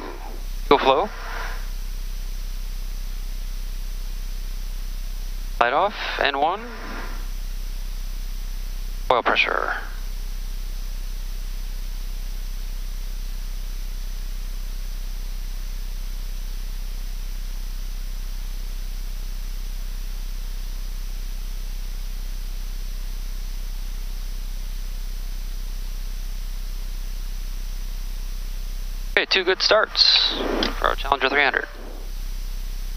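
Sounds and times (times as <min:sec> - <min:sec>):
jet engines idling: 0:00.0 - 0:01.8, 0:29.1 - 0:32.9.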